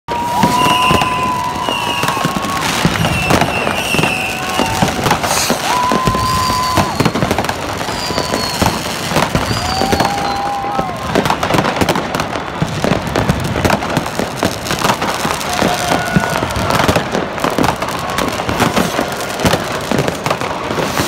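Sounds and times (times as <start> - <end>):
falling high whistles: 0.1 - 10.7
firework whistles: 0.1 - 11.9
firecracker bangs and crackles: 0.1 - 21.0.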